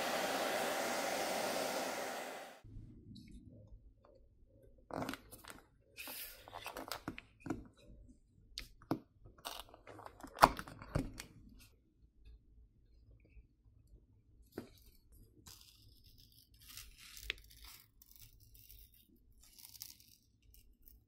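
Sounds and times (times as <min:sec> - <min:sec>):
hair dryer blowing: 0:00.0 - 0:02.6.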